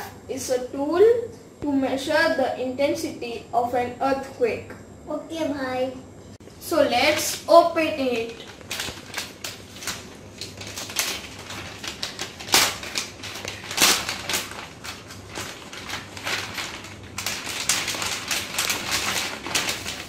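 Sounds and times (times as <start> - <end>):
plastic pouch crinkling: 7.0 - 20.0.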